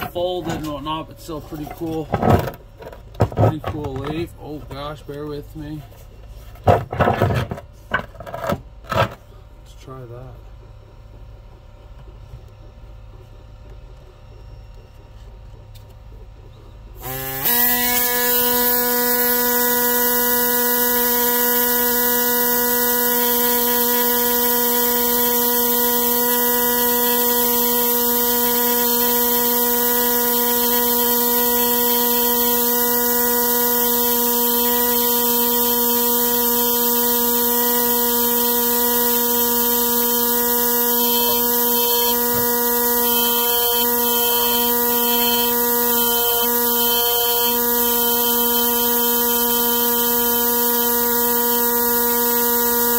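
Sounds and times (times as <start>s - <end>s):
power engraving tool buzzing: 16.9s - 52.9s.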